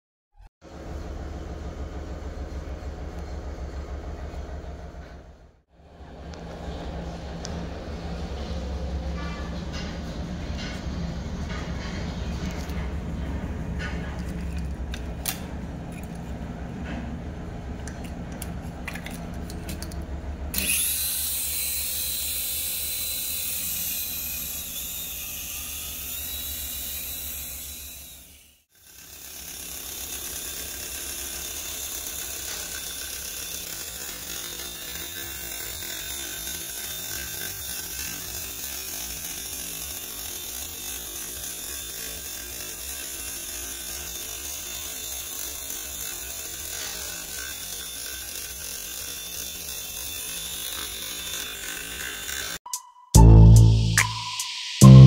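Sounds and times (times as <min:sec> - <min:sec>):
toy helicopter rotor whirring: 0:20.5 - 0:52.6.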